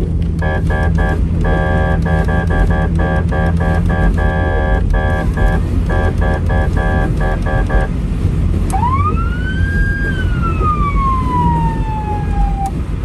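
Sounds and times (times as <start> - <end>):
vehicle road noise rumble: 0.0 - 13.0
pulsing music chords: 0.3 - 7.9
siren wail: 0.4 - 7.9, 8.7 - 13.0.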